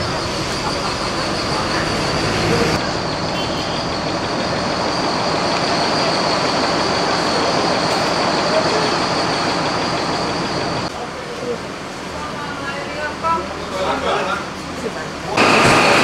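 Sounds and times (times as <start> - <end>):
high-pitched whine: 0.0 - 10.9
vehicle road and engine noise: 0.0 - 12.1.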